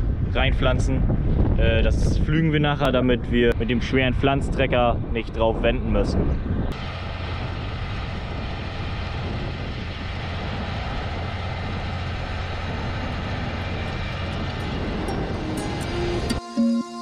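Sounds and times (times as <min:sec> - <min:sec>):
tractor diesel engine droning: 0:06.8 - 0:16.4.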